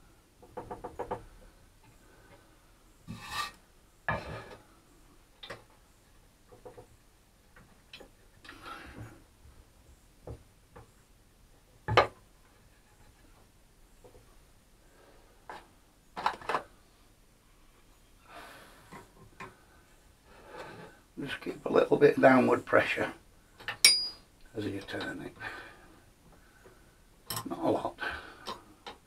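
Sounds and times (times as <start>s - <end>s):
wood scraping on table: 3.1s - 4.6s.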